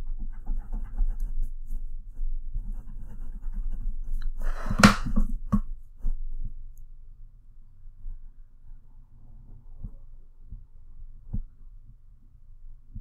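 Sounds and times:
pencil scratching on paper: 0.0s - 5.4s
sharp scrape or knock: 4.4s - 5.3s.

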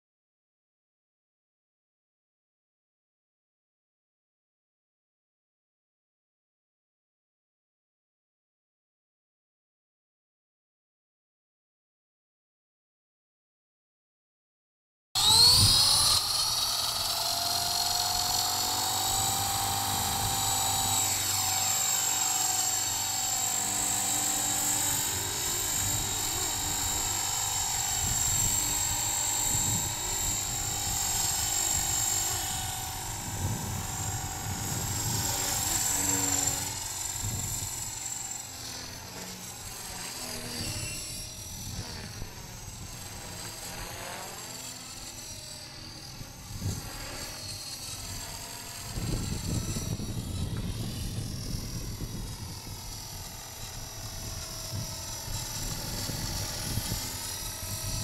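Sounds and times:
rc helicopter motor whine: 15.2s - 58.0s.

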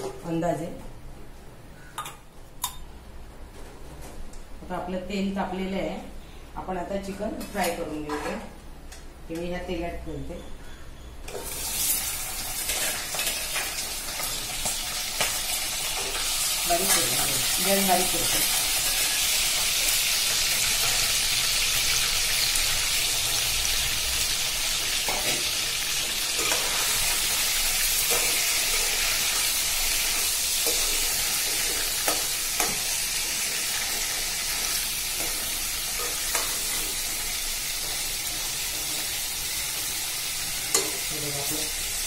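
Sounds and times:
chicken sizzling in hot oil: 11.4s - 42.0s
metal spoon scraping a pan: 12.6s - 14.4s, 25.0s - 32.9s, 33.5s - 37.1s.

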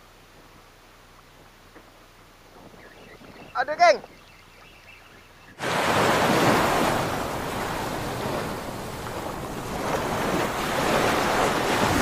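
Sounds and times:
waves washing on shore: 5.6s - 12.0s.

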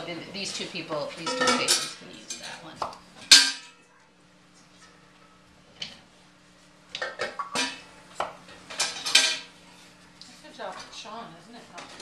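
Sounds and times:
kitchenware knocks and clinks: 1.2s - 2.6s, 8.7s - 9.5s.

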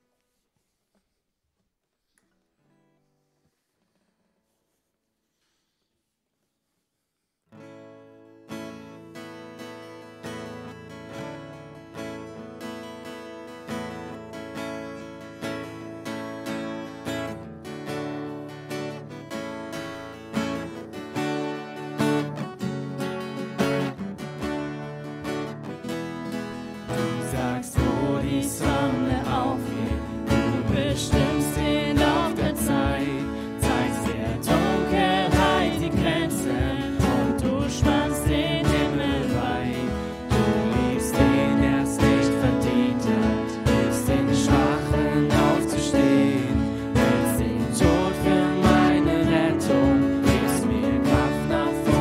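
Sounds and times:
strummed acoustic guitar: 7.6s - 52.0s
person singing: 26.9s - 52.0s
keyboard playing: 27.5s - 52.0s.

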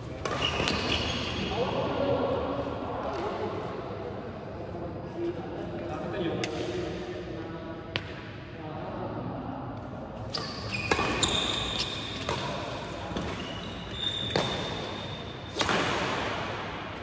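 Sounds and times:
shoes squeaking on court floor: 0.0s - 1.6s, 10.3s - 15.9s
rackets hitting shuttlecock: 0.1s - 1.4s, 10.2s - 17.0s.

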